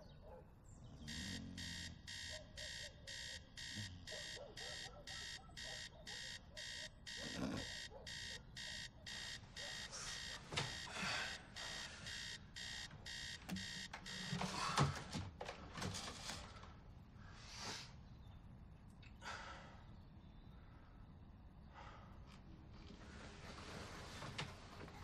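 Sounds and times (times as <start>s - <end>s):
electronic alarm beeping: 1.1s - 14.9s.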